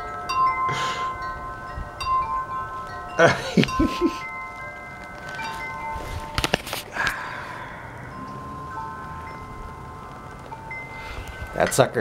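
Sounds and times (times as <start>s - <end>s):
wind chimes ringing: 0.0s - 12.0s
rustle and knock of handling: 4.6s - 7.1s.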